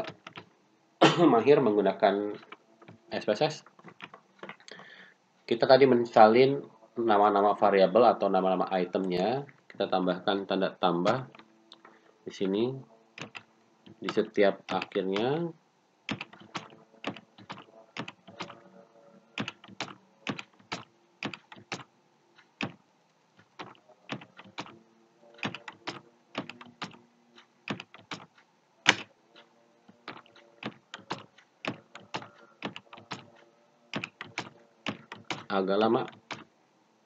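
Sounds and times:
keyboard keys clicking: 0.0 - 0.5, 2.3 - 4.9, 13.2 - 15.4, 16.1 - 18.7, 19.3 - 22.8, 23.4 - 36.5.

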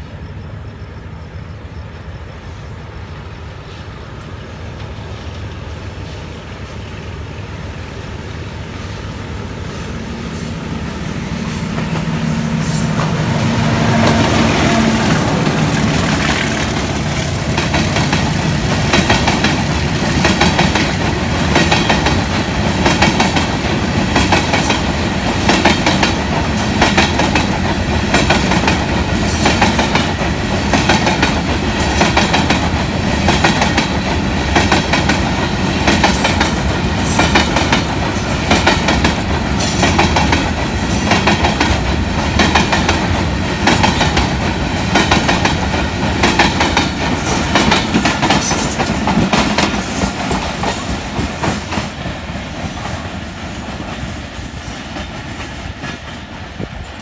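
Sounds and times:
train wheels clattering over rail joints: 14.0 - 53.1.

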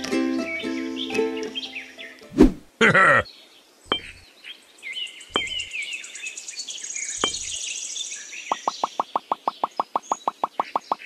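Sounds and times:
birdsong: 0.0 - 11.0
plopping clicks: 3.9 - 4.2, 5.4 - 5.7, 7.2 - 7.6
small clay bricks knocking: 5.4 - 5.7.

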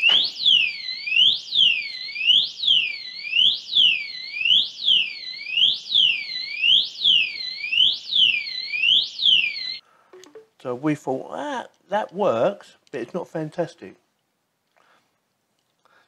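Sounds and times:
alarm siren wailing: 0.0 - 10.4.

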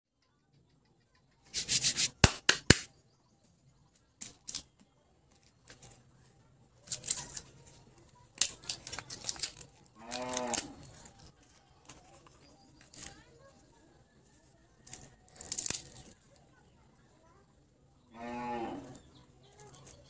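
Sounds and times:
plastic wrapper crinkling: 6.8 - 13.6, 14.7 - 16.3.

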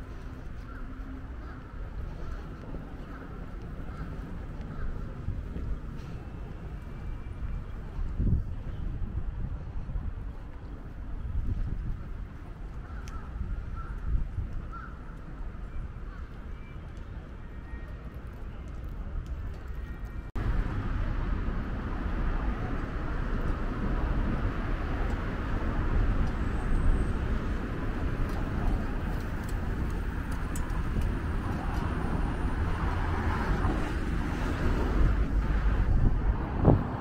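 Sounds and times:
quiet street ambience: 0.0 - 37.0
cars rumbling past: 20.4 - 37.0.

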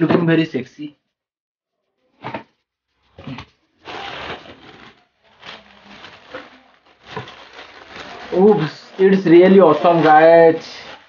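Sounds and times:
tissue paper rustling: 3.0 - 11.0.

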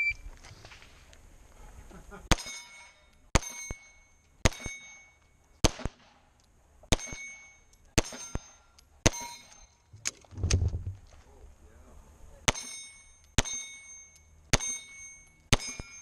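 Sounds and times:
steel plate ringing: 2.4 - 5.2, 12.5 - 16.0
pistol shots: 4.4 - 4.9, 5.6 - 6.2.

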